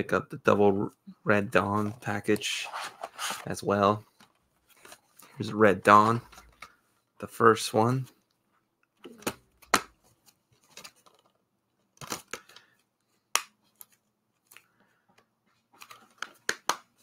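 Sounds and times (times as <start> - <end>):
plastic cases scraping: 2.4 - 3.6
plastic cases clicking and snapping: 15.8 - 17.0.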